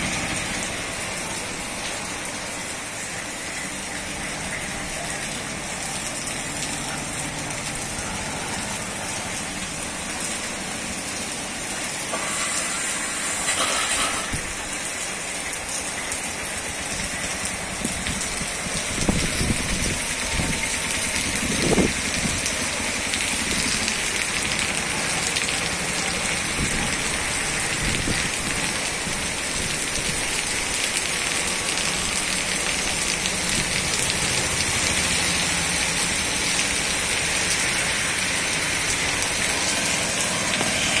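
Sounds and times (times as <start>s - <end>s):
heavy rain on a road: 0.0s - 41.0s.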